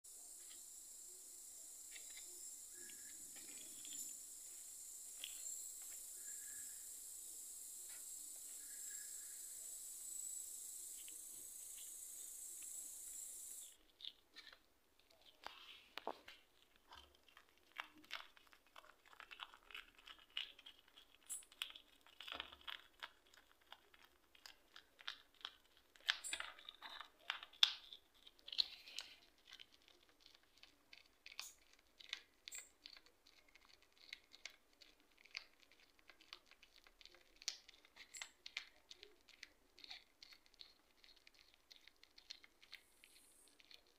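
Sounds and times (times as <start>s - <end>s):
steady hiss: 0.1s - 13.8s
hedgehog chewing insect: 0.1s - 43.9s.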